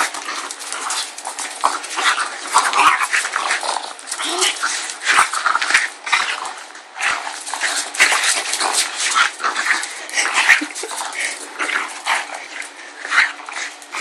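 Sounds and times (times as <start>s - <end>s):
dog growling in play: 0.0s - 14.0s.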